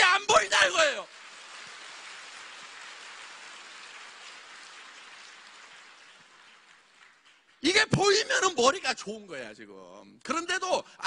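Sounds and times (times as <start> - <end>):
audience applauding: 0.3 - 8.5.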